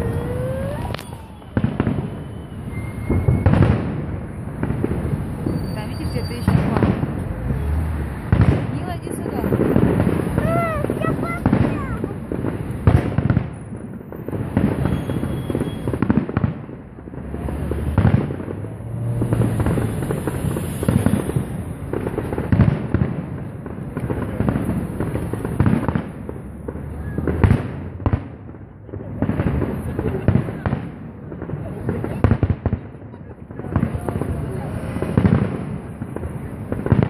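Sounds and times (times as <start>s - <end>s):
firework shells bursting: 0.0s - 3.9s.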